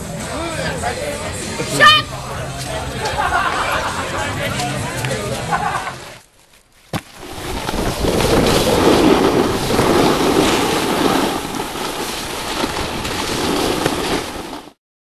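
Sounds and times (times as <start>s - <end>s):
snowboards scraping on snow: 6.9s - 14.8s
wind rushing over microphone: 7.1s - 14.8s.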